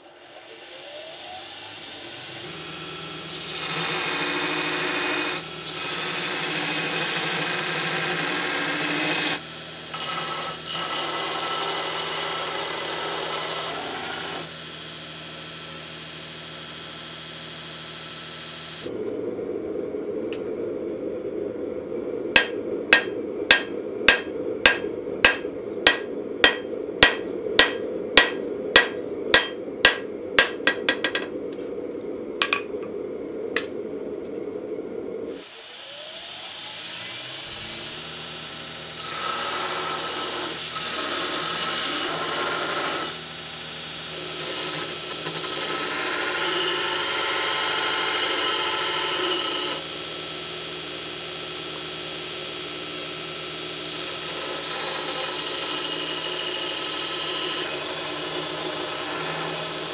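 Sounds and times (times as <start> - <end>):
forge running: 0.0 - 14.6, 18.8 - 59.9
belt grinder grinding: 1.7 - 14.5, 39.0 - 43.2
hammer striking hot steel on anvil: 22.4 - 31.3, 32.4 - 32.7.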